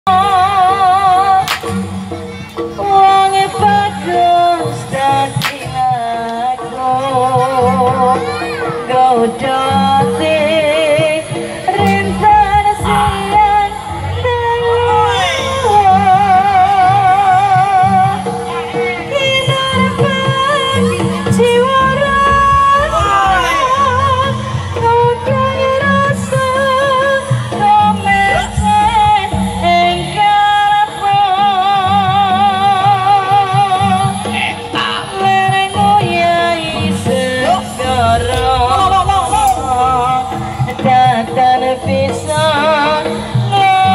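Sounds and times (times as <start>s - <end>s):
person singing vibrato melody: 2.8s - 42.9s
gamelan ensemble low notes: 6.6s - 19.1s, 19.8s - 43.6s
drums keeping rhythm: 11.4s - 30.3s, 33.2s - 43.9s.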